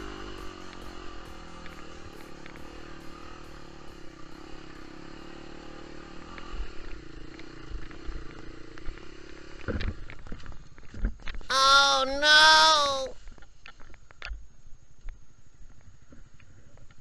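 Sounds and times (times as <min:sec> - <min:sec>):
motorcycle engine running: 0:00.0 - 0:10.8.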